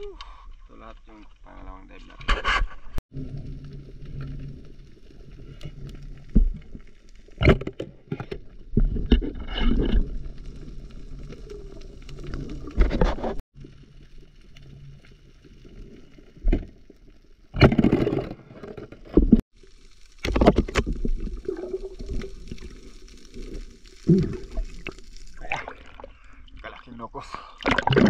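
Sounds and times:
underwater gurgling rumble: 3.1 - 26.8.

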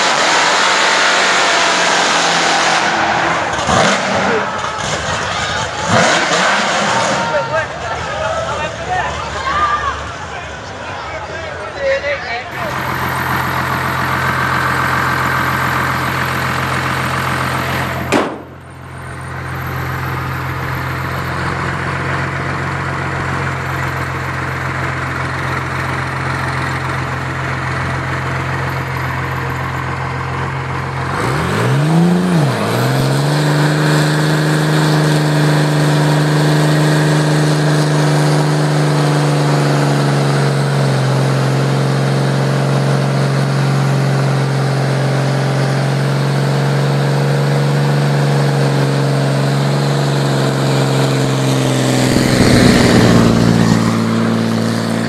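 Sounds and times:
car engine revving: 0.0 - 9.2, 12.5 - 55.0
tyres spinning in burnout: 0.0 - 11.7, 12.5 - 43.0, 47.4 - 55.0
car engine running: 12.5 - 55.0.

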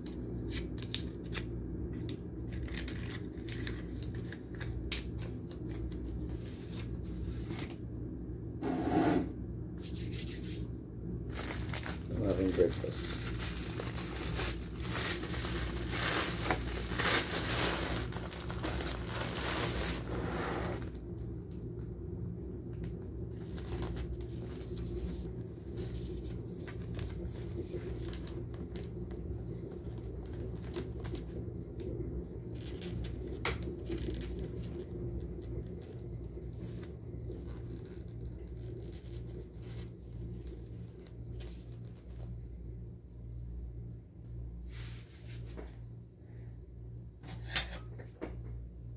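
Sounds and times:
steady low hum: 0.0 - 48.9
plastic bag crinkling: 2.4 - 7.3, 11.2 - 21.0, 23.2 - 31.4, 32.5 - 42.4.

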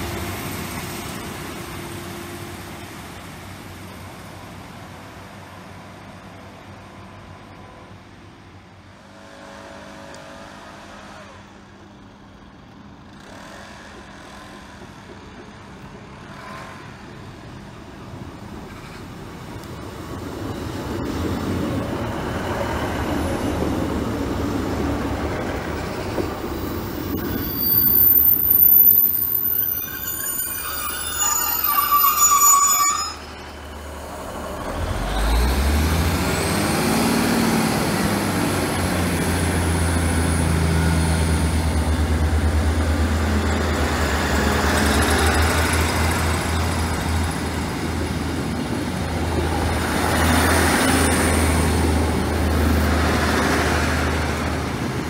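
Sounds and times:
diesel train engine drone: 0.0 - 55.0
train brakes squealing: 16.0 - 23.6, 25.6 - 36.6, 40.0 - 51.9.

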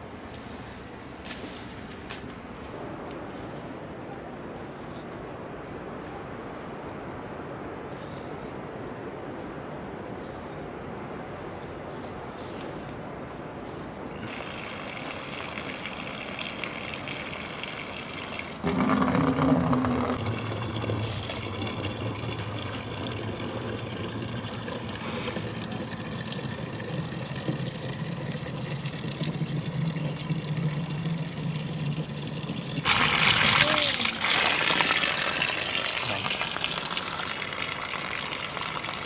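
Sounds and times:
water pouring into wooden container: 14.2 - 39.0.

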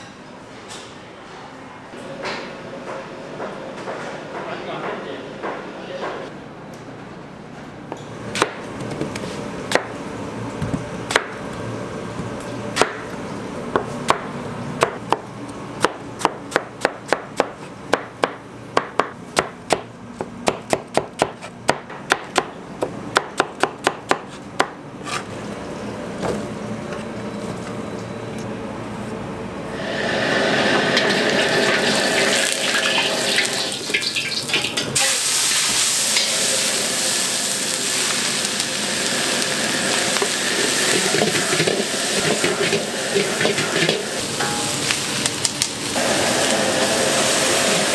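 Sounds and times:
oil sizzling in a wok: 29.8 - 47.9.

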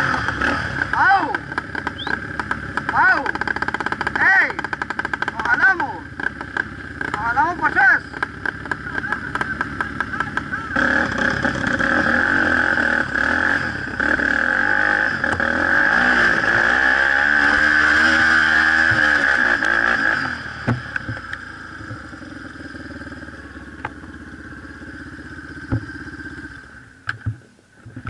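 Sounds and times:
atv engine revving: 0.0 - 28.0
sharp engine knocks: 0.2 - 5.6, 18.8 - 19.7, 20.6 - 22.2, 25.6 - 26.2.

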